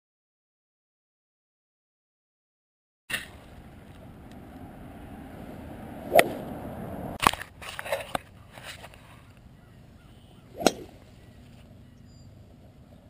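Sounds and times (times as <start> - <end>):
outdoor background noise: 3.1 - 13.0
golf club striking ball: 6.0 - 7.4, 10.4 - 11.1.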